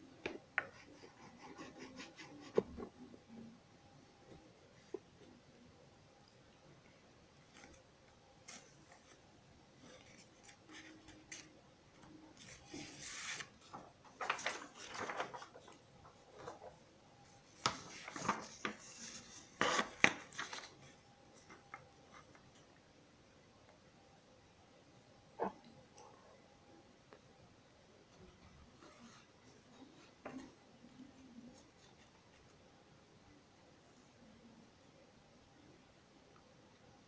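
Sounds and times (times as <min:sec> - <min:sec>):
pencil scratching on paper: 0:00.6 - 0:02.9.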